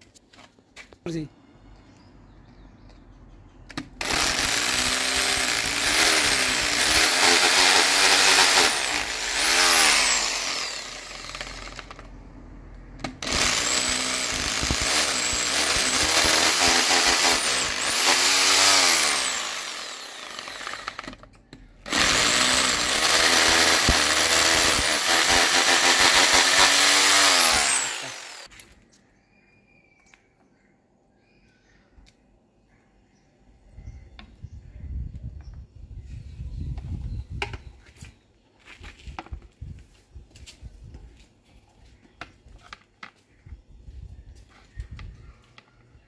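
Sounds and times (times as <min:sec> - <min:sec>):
hammer drill boring into masonry: 0:04.0 - 0:12.1, 0:13.0 - 0:28.5.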